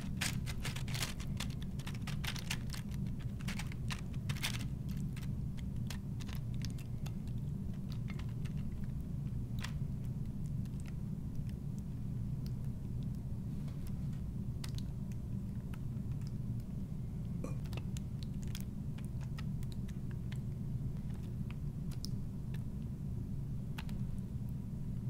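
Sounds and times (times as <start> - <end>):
tortilla chips crackling: 0.0 - 11.5.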